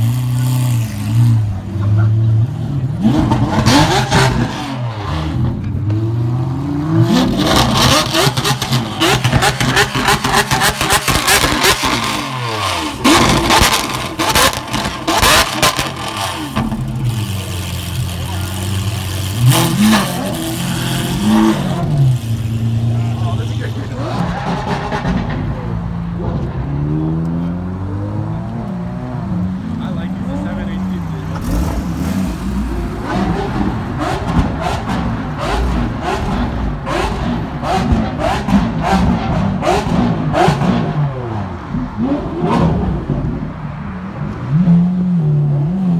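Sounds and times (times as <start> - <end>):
sports car engine revving: 0.0 - 43.5
people talking: 0.3 - 2.9, 16.9 - 21.4, 22.7 - 24.4, 29.7 - 31.7
exhaust cracks: 7.2 - 26.6.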